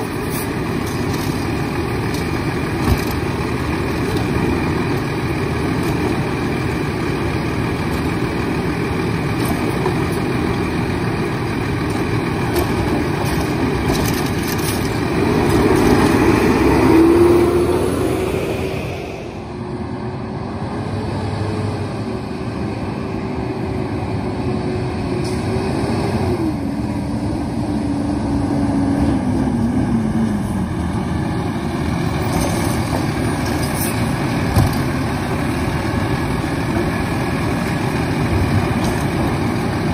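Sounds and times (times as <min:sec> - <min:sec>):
garbage truck diesel engine: 0:00.0 - 0:39.9.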